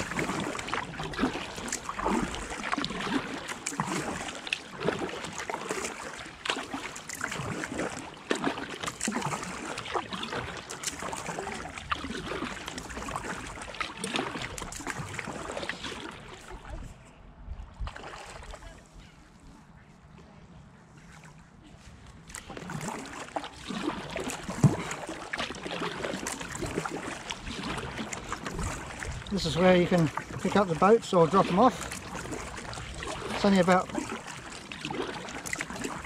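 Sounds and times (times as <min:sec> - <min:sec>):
paddle splashes and drips: 0:00.0 - 0:19.2, 0:21.0 - 0:36.0
watery hiss of moving boat: 0:22.5 - 0:36.0.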